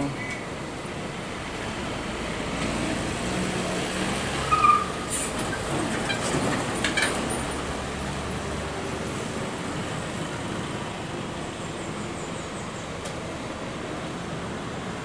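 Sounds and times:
diesel truck engines rumbling: 0:00.0 - 0:15.0.

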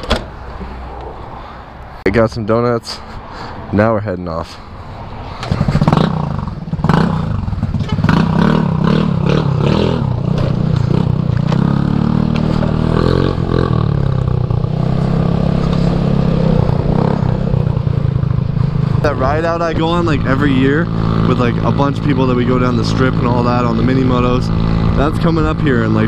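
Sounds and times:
scooter engine revving: 0:05.3 - 0:26.0.

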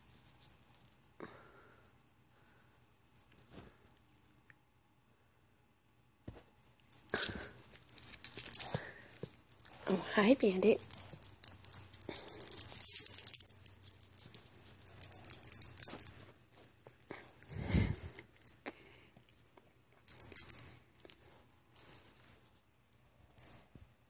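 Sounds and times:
dog tag jingling: 0:07.0 - 0:16.7, 0:20.1 - 0:22.1.

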